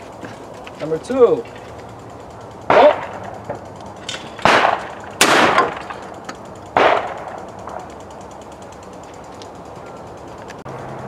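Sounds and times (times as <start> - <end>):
loud shotgun blasts with echo: 2.7 - 3.3, 4.4 - 6.0, 6.7 - 7.4.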